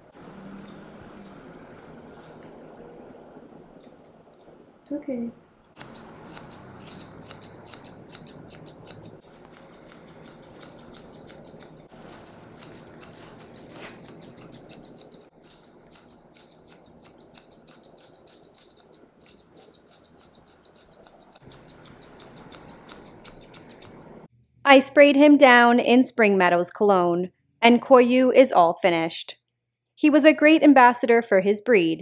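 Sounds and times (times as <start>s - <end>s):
scissors snipping: 0.4s - 1.4s, 5.7s - 24.1s.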